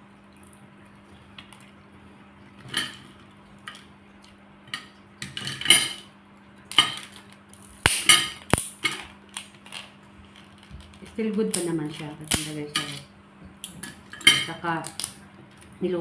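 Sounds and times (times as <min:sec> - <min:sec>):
utensils clinking against a dish: 0:04.7 - 0:06.1, 0:12.7 - 0:13.1, 0:13.8 - 0:14.7
crab shell cracking: 0:06.6 - 0:13.0, 0:14.4 - 0:15.7.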